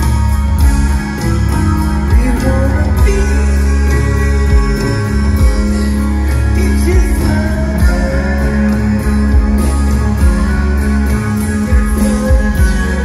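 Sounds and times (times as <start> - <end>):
rock band playing live: 0.0 - 13.0
person singing: 1.6 - 13.0.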